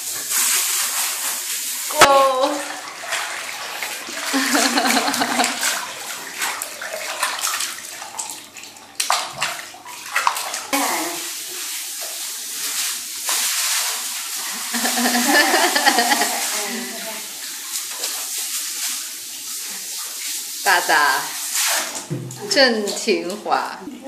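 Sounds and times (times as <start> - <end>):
shower water spraying into bathtub: 0.0 - 24.0.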